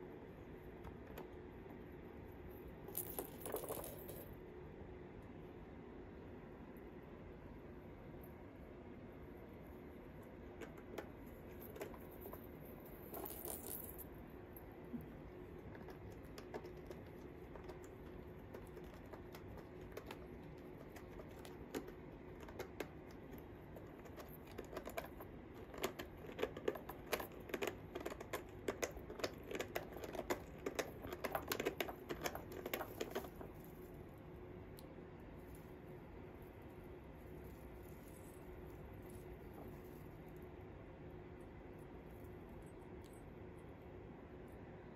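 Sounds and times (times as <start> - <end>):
faint steady hum: 0.0 - 44.9.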